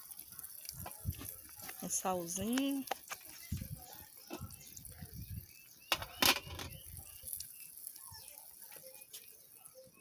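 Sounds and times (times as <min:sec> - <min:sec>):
metal cookware clinking and rattling: 0:05.8 - 0:06.8.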